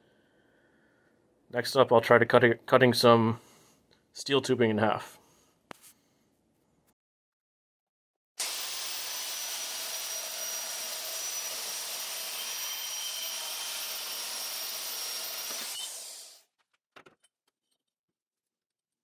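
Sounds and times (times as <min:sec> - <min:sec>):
band saw cutting steel: 0:08.4 - 0:16.4.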